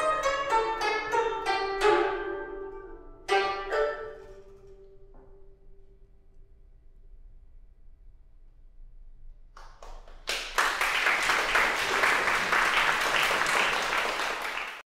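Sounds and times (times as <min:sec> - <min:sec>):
audience applauding: 0:09.6 - 0:14.9.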